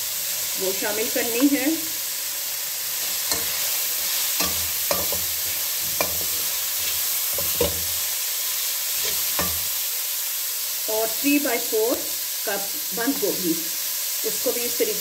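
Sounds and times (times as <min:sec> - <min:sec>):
food sizzling in hot oil: 0:00.0 - 0:15.0
metal spatula scraping pot: 0:03.0 - 0:08.0, 0:09.0 - 0:09.7.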